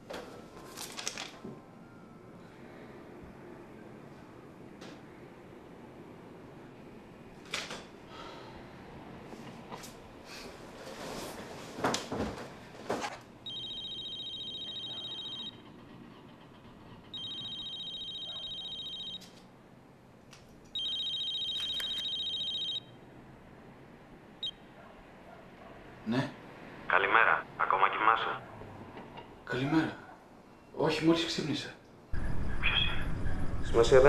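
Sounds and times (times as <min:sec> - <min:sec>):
mobile phone ringing: 0:13.4 - 0:15.6, 0:17.1 - 0:19.4, 0:20.7 - 0:23.0.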